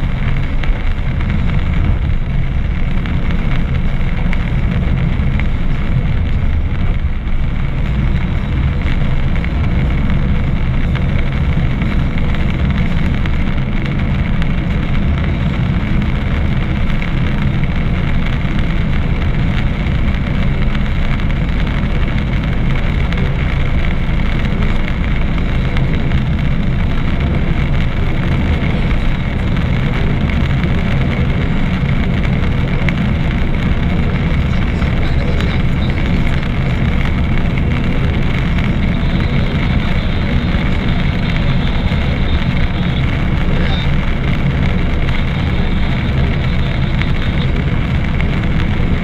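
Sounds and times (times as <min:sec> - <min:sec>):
car engine and tyre noise: 0:00.0 - 0:49.0.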